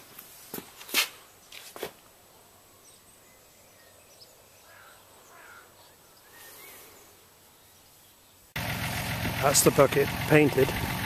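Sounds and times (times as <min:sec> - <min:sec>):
soft rustle: 0:00.0 - 0:02.2
distant bird chirps: 0:02.6 - 0:08.6.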